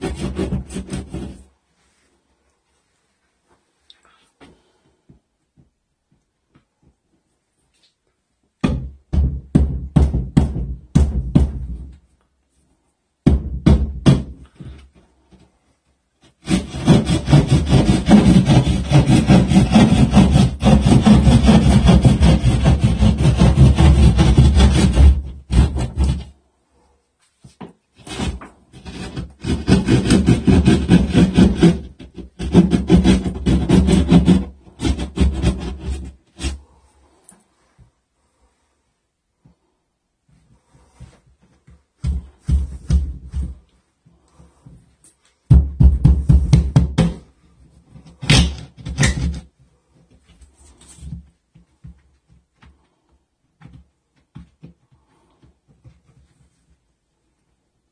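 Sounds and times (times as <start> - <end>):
jab saw cutting drywall: 0.0 - 1.5, 16.2 - 26.4, 28.0 - 36.7.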